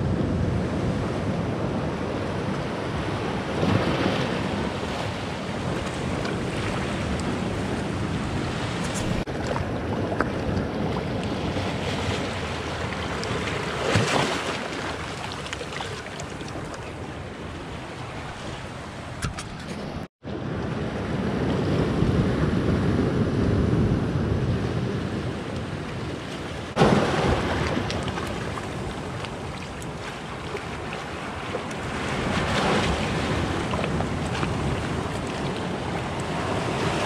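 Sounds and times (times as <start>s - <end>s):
sea surf washing over rocks: 0.0s - 19.0s, 20.8s - 37.0s.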